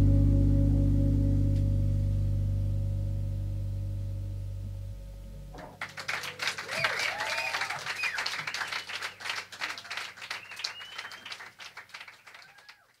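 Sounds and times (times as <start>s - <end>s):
people whooping: 5.6s - 11.5s, 12.2s - 13.0s
audience applauding: 5.6s - 13.0s
person whistling: 10.4s - 11.4s.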